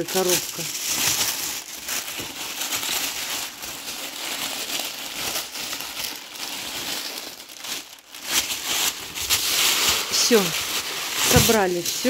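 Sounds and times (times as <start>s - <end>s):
paper crinkling and rustling: 0.0s - 12.0s.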